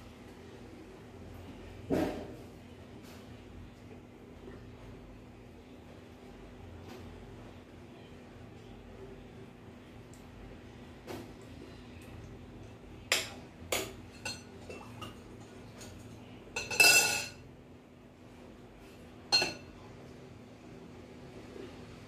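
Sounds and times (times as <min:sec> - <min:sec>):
metal spoon clinking on glass: 0:16.6 - 0:17.4, 0:19.3 - 0:19.7.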